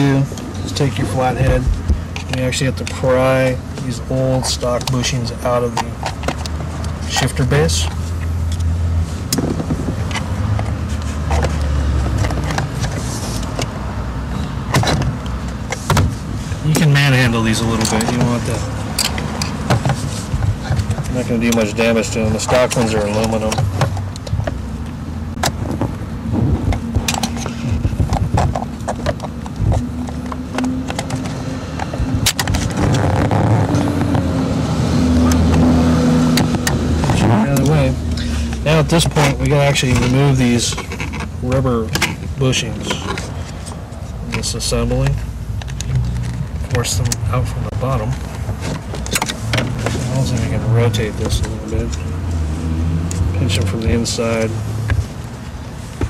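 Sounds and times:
steady low rumble: 0.0 - 5.7, 16.1 - 30.6
gear shifter clicking and knocking: 0.0 - 8.7, 9.3 - 13.8, 14.6 - 34.4, 35.2 - 52.1.

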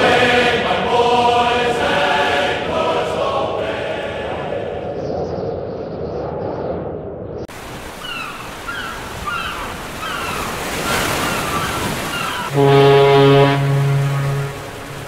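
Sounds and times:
ocean surf washing: 0.0 - 5.0, 7.5 - 15.0
short bird calls: 8.0 - 12.6.

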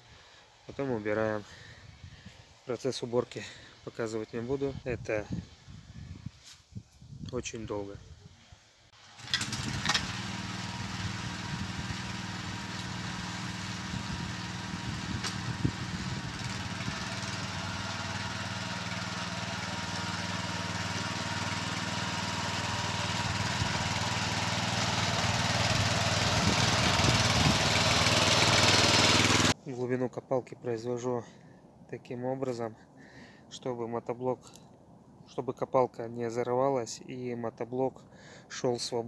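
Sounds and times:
walk-behind tractor engine running: 9.0 - 29.6.

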